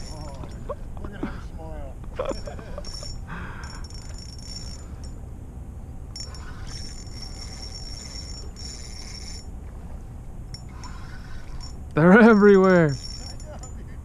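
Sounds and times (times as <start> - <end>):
fishing reel whining: 2.8 - 5.2, 6.1 - 9.5, 10.5 - 13.8.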